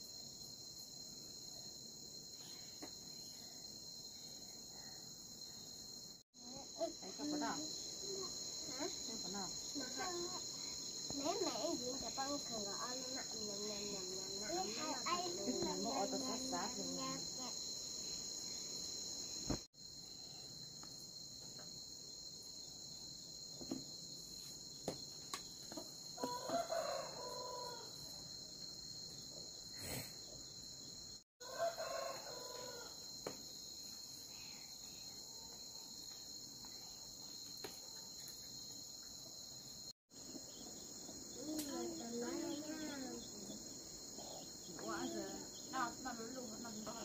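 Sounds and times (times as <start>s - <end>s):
high drone of insects: 0.0s - 47.0s
rooster crowing: 26.2s - 28.0s, 31.4s - 33.1s.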